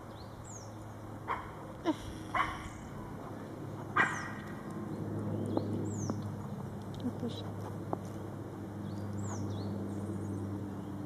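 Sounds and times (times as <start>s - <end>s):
small dog barking: 1.3s - 1.6s, 2.3s - 2.8s, 4.0s - 4.4s.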